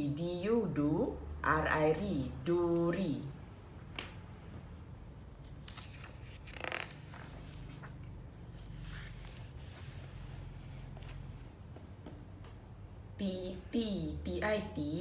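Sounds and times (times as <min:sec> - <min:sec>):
book pages turning: 0:05.3 - 0:11.6.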